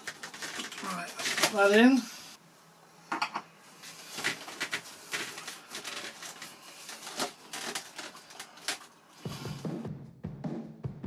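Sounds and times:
foam model being handled: 3.7 - 9.5.

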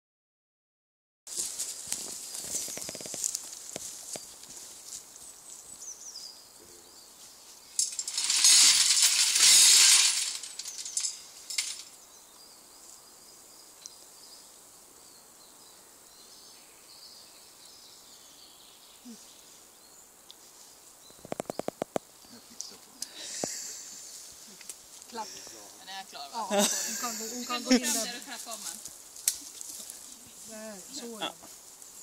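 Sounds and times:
loud jangling metallic clatter: 7.8 - 11.8.

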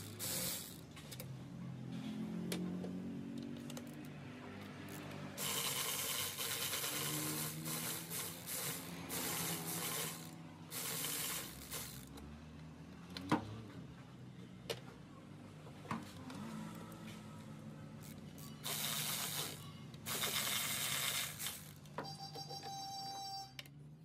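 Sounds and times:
electric ratchet whirring: 0.0 - 1.2, 4.7 - 12.2, 18.0 - 21.9.

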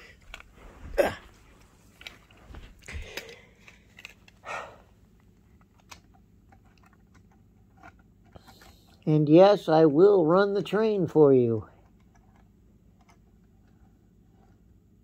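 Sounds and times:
small plastic clicks: 5.6 - 9.0.

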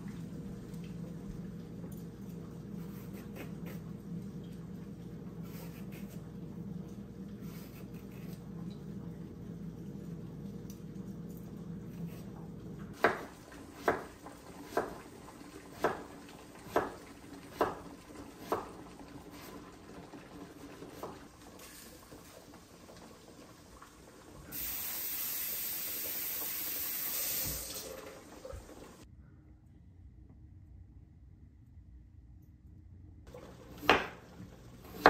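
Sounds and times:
tap running into sink: 27.1 - 27.9.

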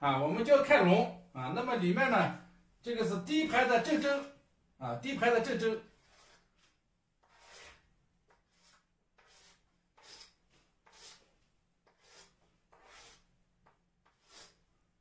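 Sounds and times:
chalk scraping on chalkboard: 5.9 - 14.7.

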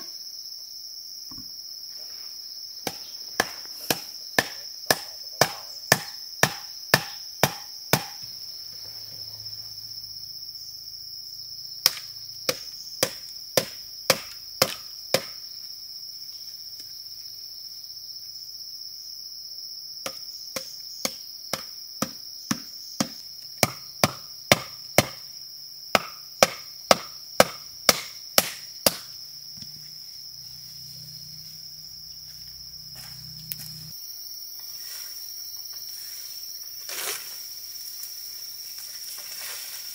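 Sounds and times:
insects droning: 0.0 - 39.9
chopping wood: 2.8 - 8.3, 11.8 - 15.4, 20.0 - 25.2, 25.9 - 29.7.

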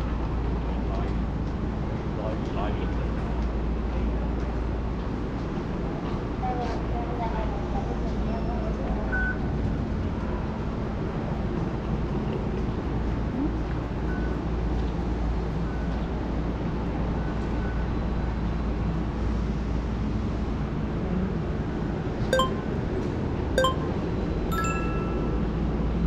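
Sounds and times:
chime-like ringing tone: 22.4 - 22.7, 23.6 - 25.6.

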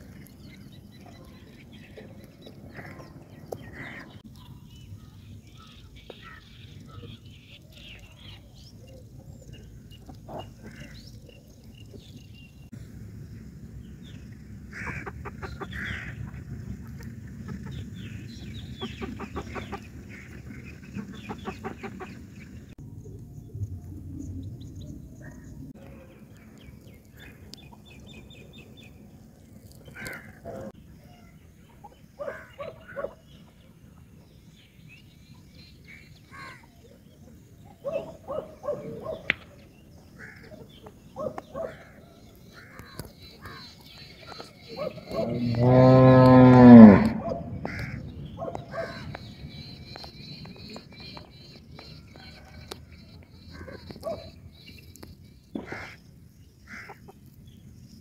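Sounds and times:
birds calling: 0.0 - 23.6, 24.2 - 58.0
steady low rumble: 12.7 - 21.3, 22.2 - 29.6.

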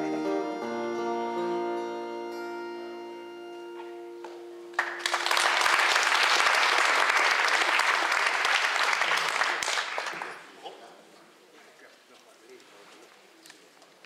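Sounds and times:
acoustic guitars and accordion chord: 0.0 - 4.7
audience applause: 4.8 - 10.6.

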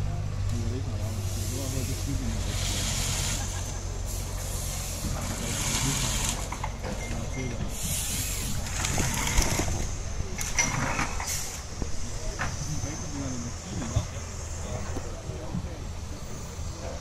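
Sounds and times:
diesel engines running: 0.0 - 17.0
hissing bursts: 7.7 - 8.8.

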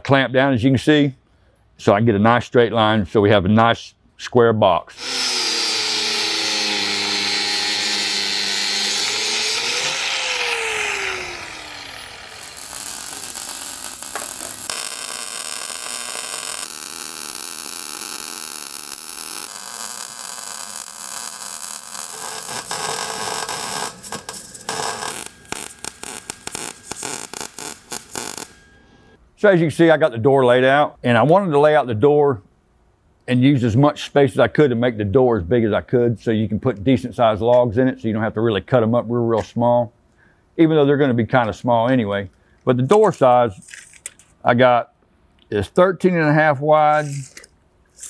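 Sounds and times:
angle grinder cutting steel: 5.0 - 28.8
mig welding: 5.0 - 29.2.

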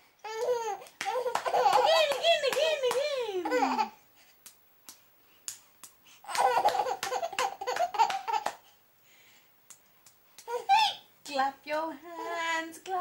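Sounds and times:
baby clapping hands: 0.3 - 3.1, 4.4 - 8.6, 9.7 - 10.6
baby laughing: 0.3 - 4.0, 6.2 - 8.6.

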